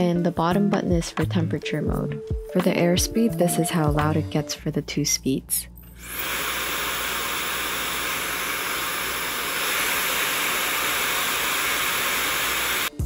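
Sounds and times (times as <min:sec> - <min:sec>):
hair dryer running: 0:06.0 - 0:13.0.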